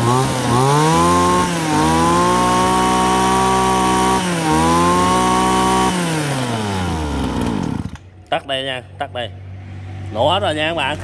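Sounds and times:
brush cutter engine revving: 0.0 - 8.1.

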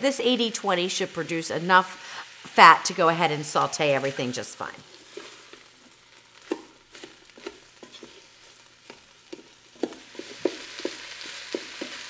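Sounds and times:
meat sizzling: 0.0 - 12.0
wooden spoon scraping a pot: 4.9 - 12.0.

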